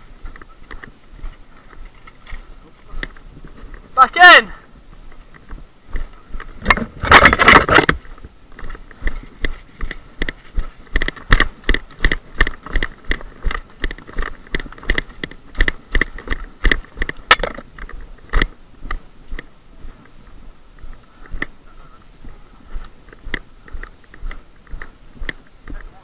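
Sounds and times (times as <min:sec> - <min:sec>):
footsteps on muddy path: 0:00.0 - 0:26.0
loose kit rattling: 0:06.6 - 0:08.0.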